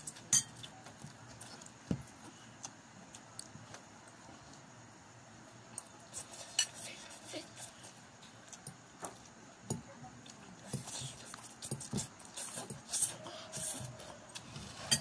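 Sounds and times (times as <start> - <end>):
cutlery clicking against bowls: 0.0 - 0.6.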